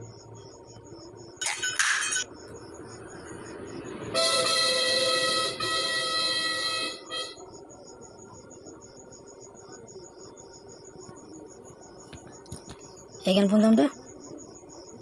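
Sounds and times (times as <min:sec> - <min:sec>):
insects chirping: 0:00.0 - 0:15.0
vehicle horn honking: 0:04.1 - 0:07.4.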